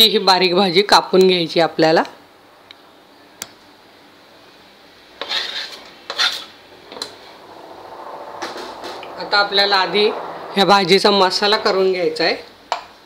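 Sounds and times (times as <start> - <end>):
knife scraping cutting board: 5.2 - 6.5.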